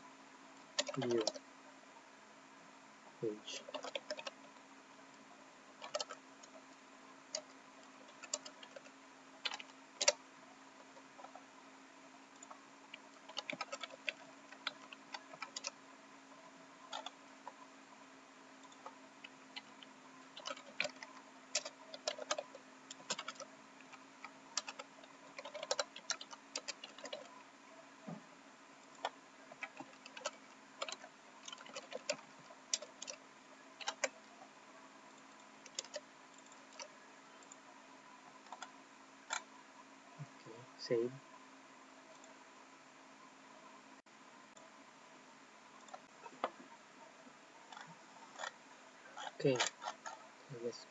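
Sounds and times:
keyboard keys clicking: 0:00.8 - 0:01.4, 0:03.7 - 0:04.4, 0:05.8 - 0:06.2, 0:08.1 - 0:10.2, 0:13.2 - 0:15.8, 0:20.4 - 0:24.0, 0:24.6 - 0:27.3, 0:28.9 - 0:33.2, 0:33.8 - 0:34.2, 0:35.6 - 0:37.6.

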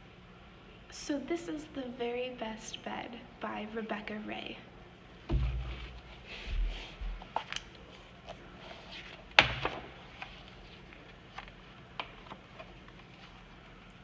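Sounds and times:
book pages turning: 0:05.8 - 0:14.0.

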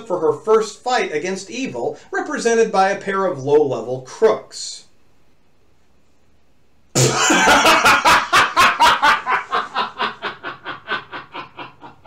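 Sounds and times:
person laughing: 0:07.0 - 0:12.0.

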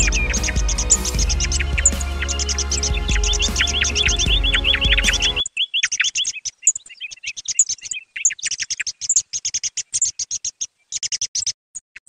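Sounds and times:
recorded thrush calls: 0:00.0 - 0:11.6.

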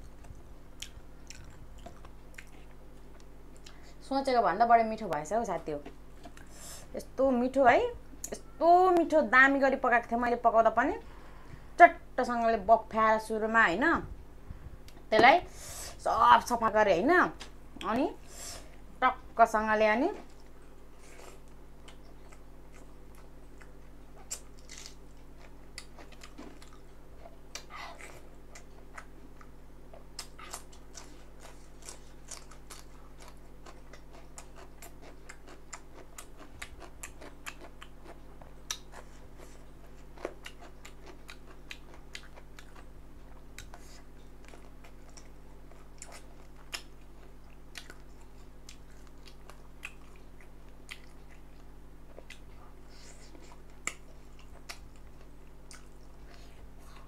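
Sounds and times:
steady low hum: 0:00.0 - 0:57.0
person chewing and biting: 0:00.1 - 0:03.8, 0:21.0 - 0:57.0.

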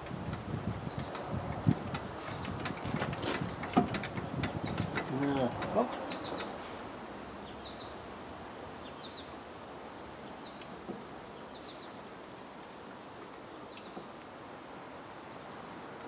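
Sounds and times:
faint outdoor background noise: 0:00.0 - 0:16.0
bird chirping: 0:04.6 - 0:06.7, 0:07.4 - 0:08.0.

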